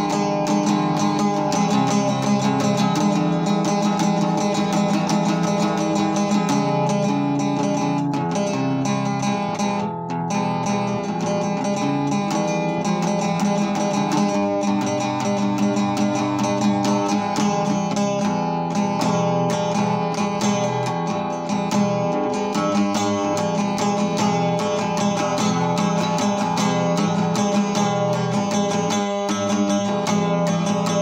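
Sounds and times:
acoustic guitar strumming: 0.0s - 31.0s.

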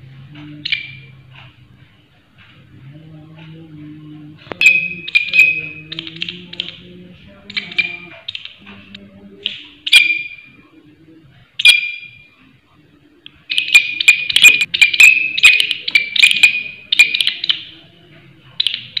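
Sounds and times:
katydid rasping chirps: 7.5s - 8.6s.

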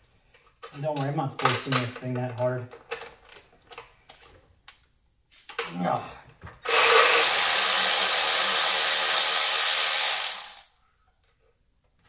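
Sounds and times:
electric ratchet whirring: 6.6s - 10.7s.

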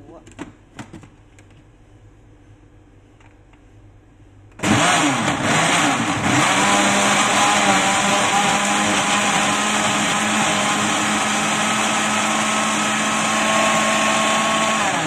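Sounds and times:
blender motor chopping: 4.6s - 15.0s.

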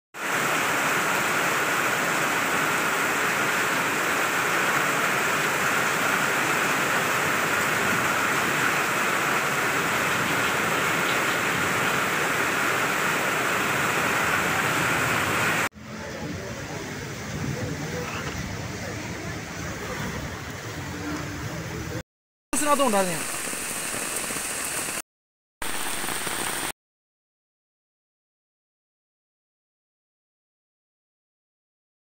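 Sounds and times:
floodwater rushing: 0.2s - 15.7s, 22.6s - 25.0s, 25.6s - 26.7s.

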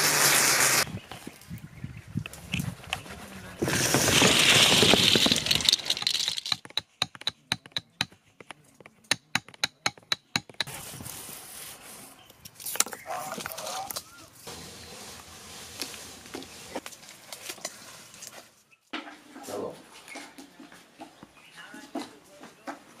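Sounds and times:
hands scraping powder: 3.2s - 6.6s, 14.4s - 18.5s
stick tapping into paper tubes: 5.6s - 10.7s.

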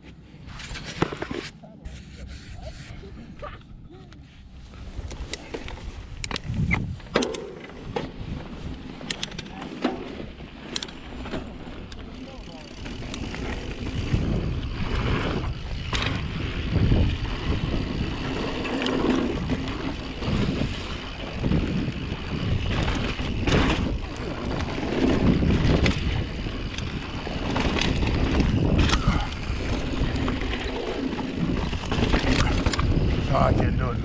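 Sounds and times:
wind buffeting microphone: 3.0s - 9.4s, 12.7s - 34.0s
bike knocking and rattling: 5.0s - 34.0s
tyres rolling over dirt and rocks: 7.7s - 34.0s.

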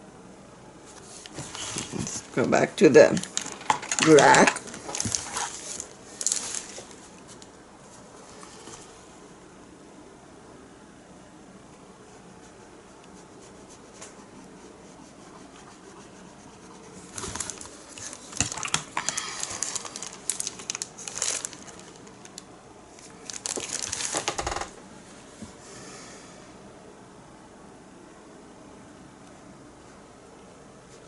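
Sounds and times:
crinkling handling noise: 0.9s - 9.0s, 16.8s - 25.6s.

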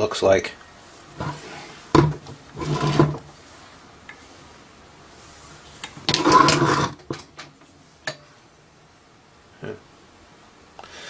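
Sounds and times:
metal pump clattering: 1.2s - 3.2s, 6.1s - 7.2s.

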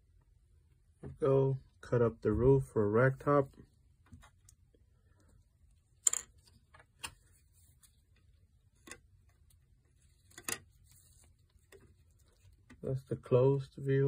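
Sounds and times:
plastic parts clicking: 10.2s - 10.7s.

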